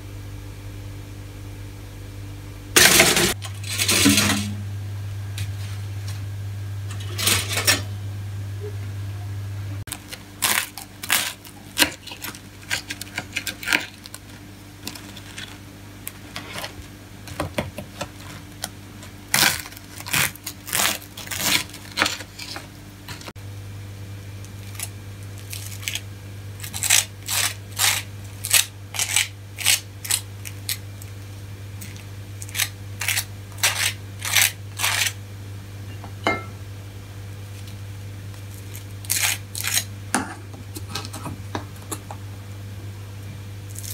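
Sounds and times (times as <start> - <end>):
knife scraping butter on toast: 26.6 - 30.8, 31.8 - 35.2, 38.6 - 39.9
knife cutting crisp toast: 31.8 - 35.2.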